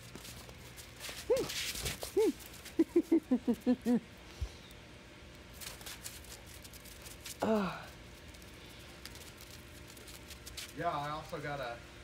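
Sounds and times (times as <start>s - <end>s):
faint crunching: 8.1s - 11.3s.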